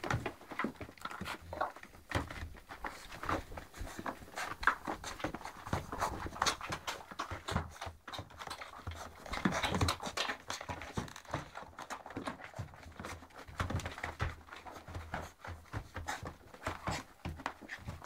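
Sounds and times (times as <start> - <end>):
puppies making small noises: 0.0 - 18.0.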